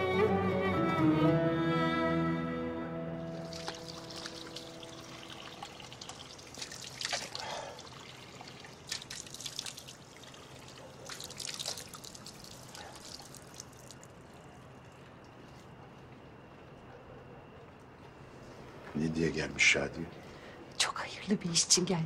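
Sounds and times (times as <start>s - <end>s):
water running from tap: 3.3s - 14.2s
water splashing over hands: 3.3s - 14.2s.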